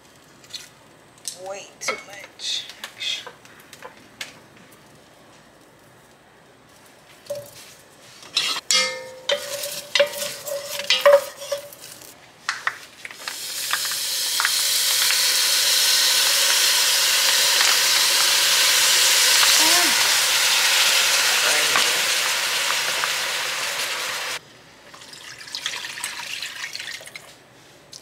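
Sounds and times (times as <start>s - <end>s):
squeaky scrape: 8.2s - 8.6s
wooden spoon stirring in pot: 8.4s - 12.0s
liquid sizzling in hot pot: 13.0s - 24.4s.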